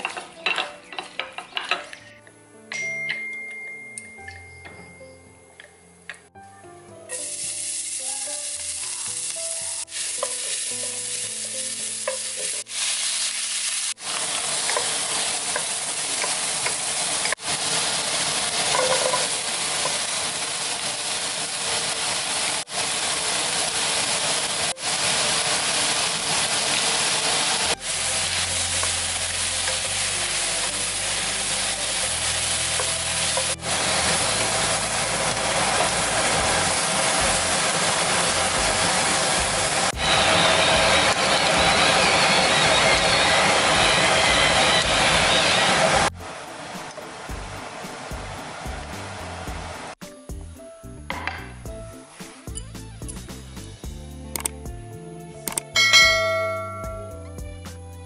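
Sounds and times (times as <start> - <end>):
oil sizzling in a frying pan: 7.1 - 50.0.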